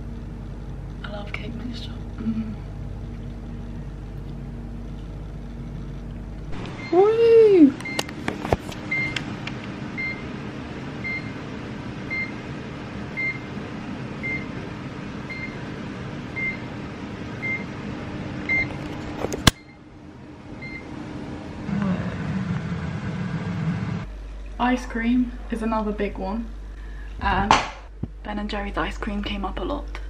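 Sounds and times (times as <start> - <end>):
oven humming: 0.0 - 30.0
oven timer beeping: 6.6 - 8.1, 8.9 - 9.2, 9.9 - 10.4, 11.0 - 11.4, 12.1 - 12.4, 13.1 - 13.5, 14.2 - 14.6, 15.2 - 15.6, 16.4 - 16.7, 17.4 - 17.8, 18.4 - 18.8, 19.4 - 19.9, 20.6 - 21.0.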